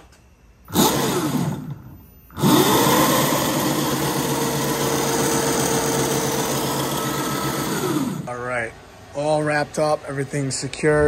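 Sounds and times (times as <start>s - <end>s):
electric motor whine: 0.7s - 8.3s.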